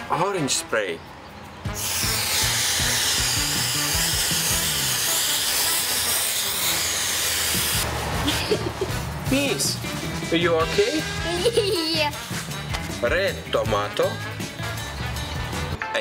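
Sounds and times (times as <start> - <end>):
spray paint can hissing: 1.8 - 7.9.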